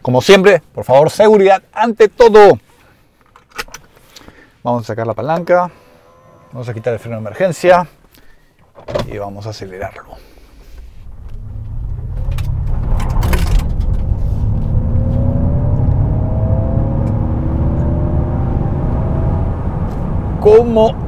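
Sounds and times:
faint tones rising in pitch: 5.8s - 7.6s, 10.9s - 21.0s
road and tyre rumble: 10.1s - 21.0s.

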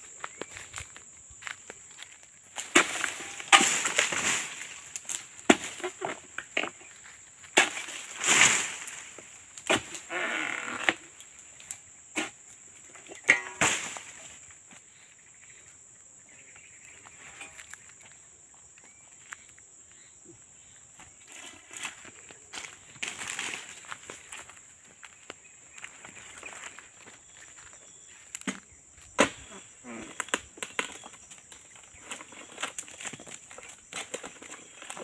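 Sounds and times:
high insect whine: 0.0s - 35.0s
fruit bunches crashing through leaves: 2.6s - 6.3s, 7.5s - 10.8s, 13.2s - 14.4s.

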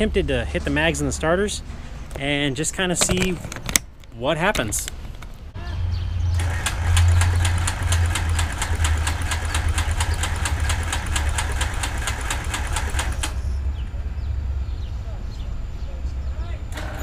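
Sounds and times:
aircraft engine cranking on starter: 6.4s - 13.6s, 16.7s - 17.0s.

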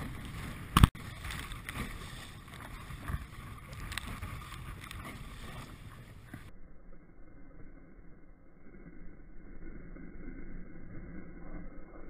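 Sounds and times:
water splashing against hull: 0.0s - 6.2s
wind buffeting microphone: 0.0s - 6.5s.

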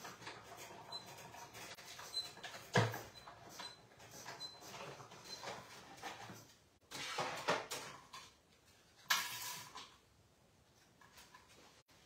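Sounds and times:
squeak: 0.5s - 5.6s.

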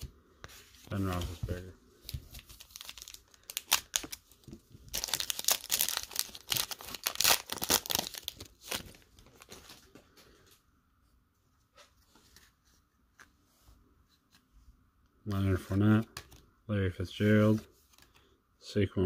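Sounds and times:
wrapper crinkling and tearing: 2.3s - 4.3s, 4.9s - 9.7s.

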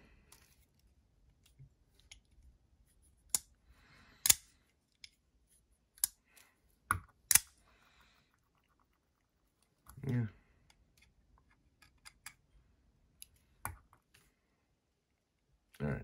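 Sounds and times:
folding knife clicking open and shut: 4.2s - 4.5s, 7.3s - 7.5s.

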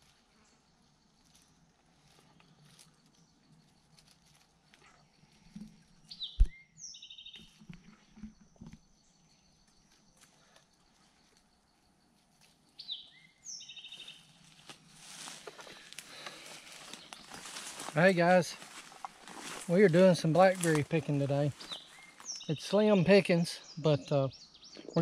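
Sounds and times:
songbird singing: 0.0s - 25.0s
rustling of leaves and brush: 1.2s - 6.5s, 12.1s - 22.8s.

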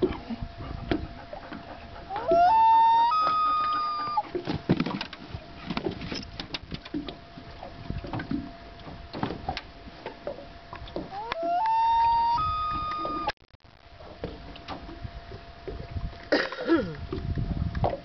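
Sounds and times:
loon wailing: 2.1s - 4.3s, 11.1s - 13.3s
low knocks and thumps: 17.0s - 18.0s.

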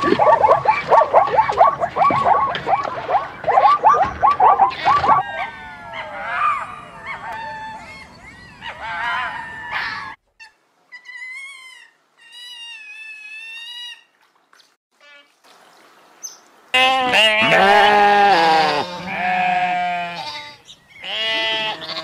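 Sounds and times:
fox whining: 0.0s - 10.2s
zebra barking and squealing: 0.0s - 10.6s, 16.8s - 22.0s.

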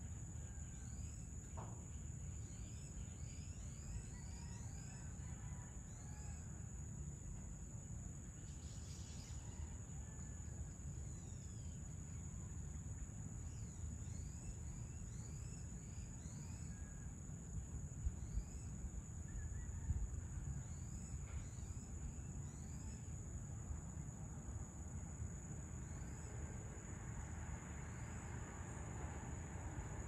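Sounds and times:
high-pitched insect trill: 0.0s - 30.0s.

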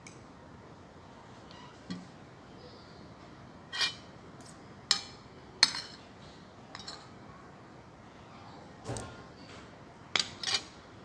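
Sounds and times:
cutlery clinking on ceramic plate: 10.2s - 10.7s.

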